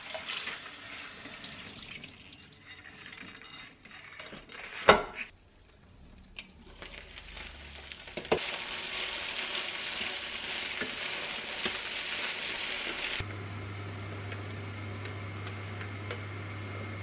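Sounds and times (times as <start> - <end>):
food sizzling in oil: 6.6 - 13.2.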